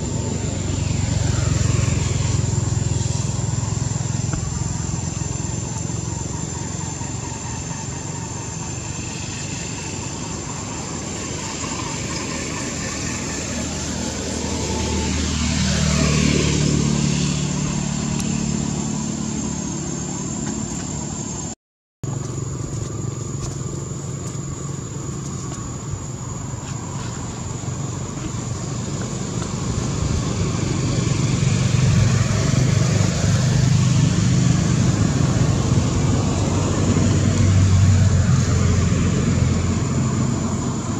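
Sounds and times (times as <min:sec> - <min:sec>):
vehicle passing: 0:00.0 - 0:07.4, 0:10.5 - 0:21.2, 0:26.5 - 0:40.9
steady high whine: 0:00.0 - 0:40.9
vehicle engines running: 0:00.0 - 0:40.9.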